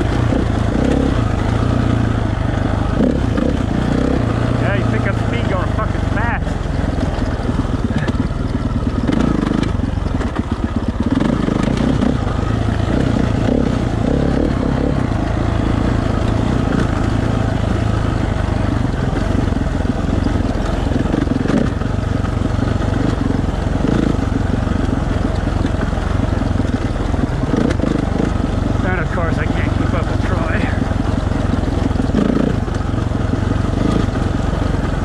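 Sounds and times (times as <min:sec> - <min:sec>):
dirt bike engine running: 0:00.0 - 0:35.0.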